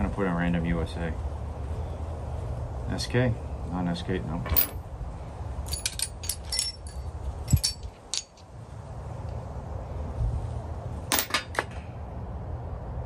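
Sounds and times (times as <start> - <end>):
low background rumble: 0.0 - 13.0
steel sockets clinking: 4.4 - 4.9, 5.7 - 8.5, 11.1 - 11.7.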